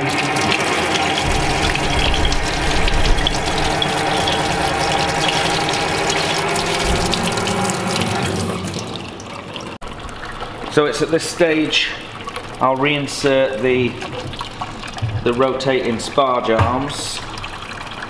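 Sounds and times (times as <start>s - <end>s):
tap running into metal sink: 0.0s - 9.4s, 13.7s - 17.4s
water splashing off a plate: 0.0s - 18.0s.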